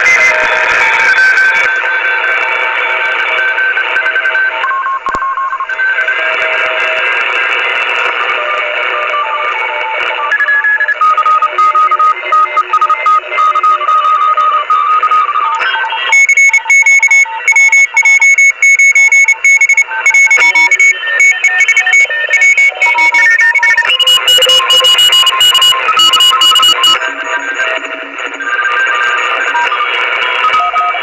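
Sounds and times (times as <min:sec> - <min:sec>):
morse code beeping tones: 0:10.4 - 0:27.0.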